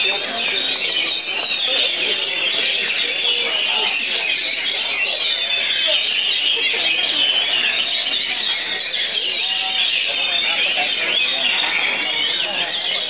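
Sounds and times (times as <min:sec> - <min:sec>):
chorus of songbirds whistling: 0:00.0 - 0:13.0.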